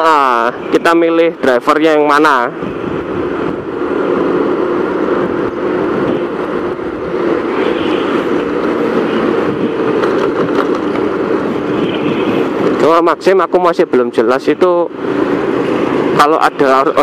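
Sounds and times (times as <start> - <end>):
road noise: 0.0 - 17.0.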